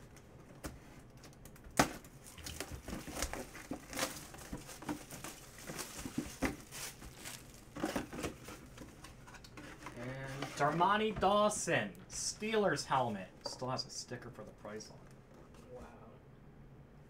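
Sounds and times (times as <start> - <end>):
cardboard box rustling and tearing: 2.5 - 8.6.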